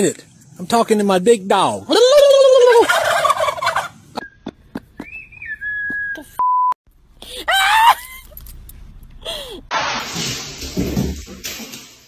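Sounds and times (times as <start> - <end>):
censor bleep: 6.0 - 6.8
dog scream-like cries: 7.5 - 8.1.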